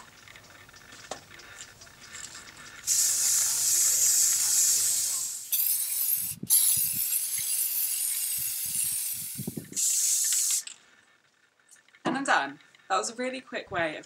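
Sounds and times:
spray paint can hissing: 2.8s - 10.8s.

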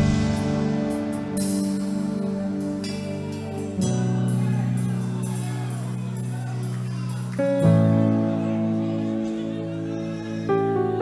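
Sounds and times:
worship music on keyboard: 0.0s - 11.0s.

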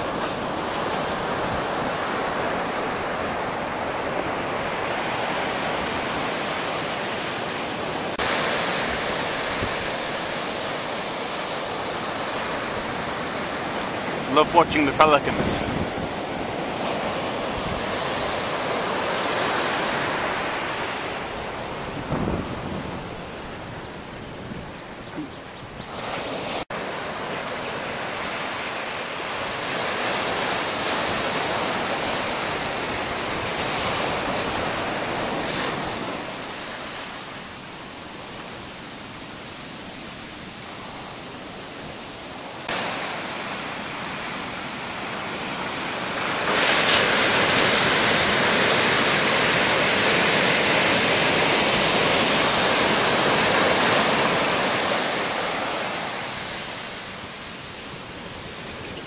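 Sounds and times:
ocean surf breaking on beach: 0.0s - 59.0s.

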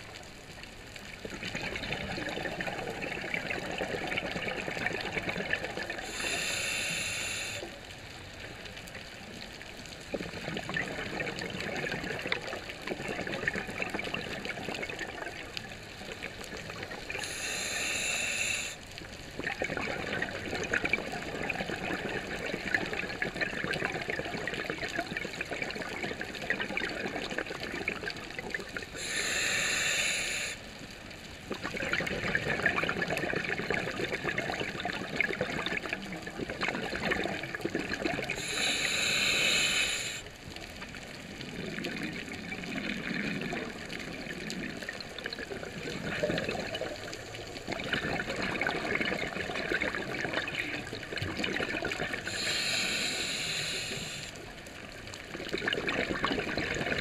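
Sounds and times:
exhaled bubbles gurgling: 0.0s - 57.0s
hissing regulator inhalations: 6.0s - 7.8s, 17.2s - 18.8s, 29.0s - 30.7s, 38.4s - 40.3s, 52.2s - 54.4s.

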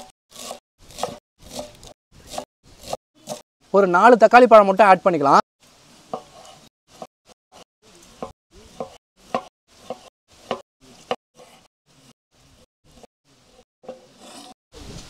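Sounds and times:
knife chopping on cutting board: 0.0s - 3.4s, 8.2s - 11.7s.

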